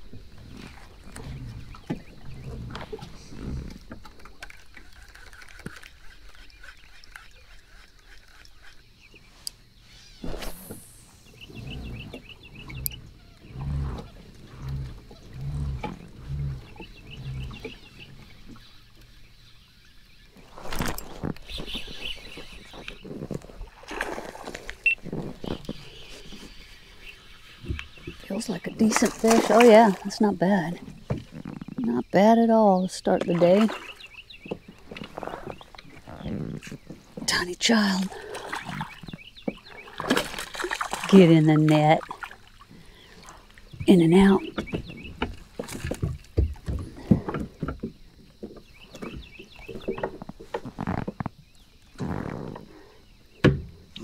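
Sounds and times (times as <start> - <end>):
low animal calls: 0.0 - 8.8, 9.8 - 19.1, 33.6 - 37.3
fish splashing at water surface: 39.8 - 43.6.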